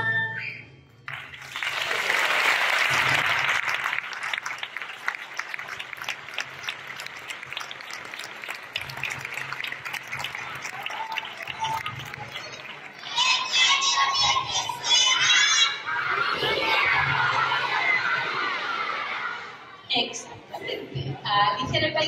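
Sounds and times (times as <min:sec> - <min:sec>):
audience applause: 0:01.1 - 0:13.4.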